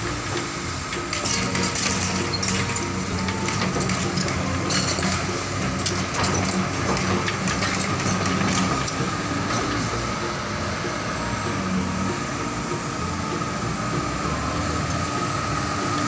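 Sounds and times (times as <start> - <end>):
excavator diesel engine running: 0.0 - 16.0
metallic clicks and clanks: 0.4 - 9.9.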